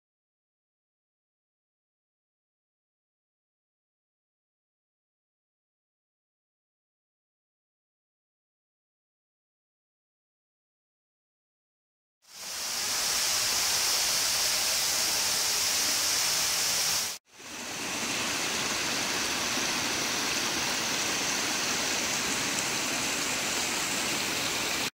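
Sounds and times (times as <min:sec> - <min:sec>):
water spilling over a weir: 0:12.3 - 0:24.9.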